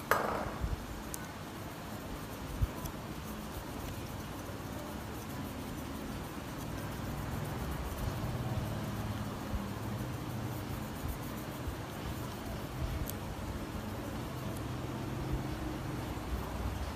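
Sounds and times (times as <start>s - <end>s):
soft knock: 0.1s - 0.6s.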